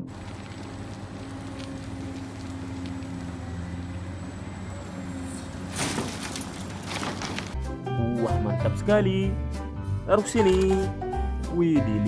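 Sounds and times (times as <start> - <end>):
excavator diesel engine running: 0.0 - 7.6.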